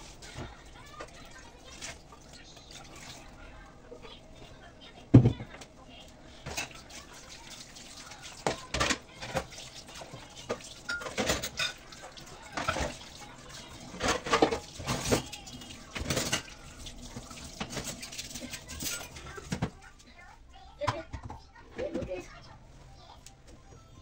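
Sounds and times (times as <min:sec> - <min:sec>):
tap water running: 0:00.0 - 0:19.9
dishes clinking: 0:06.4 - 0:07.1, 0:08.4 - 0:19.8.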